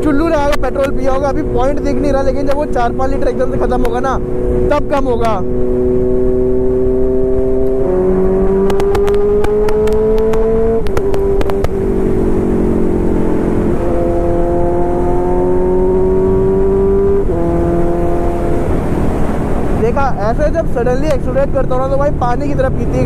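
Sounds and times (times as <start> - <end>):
motorcycle engine accelerating: 0.0 - 23.0
sharp clicks: 8.6 - 11.8.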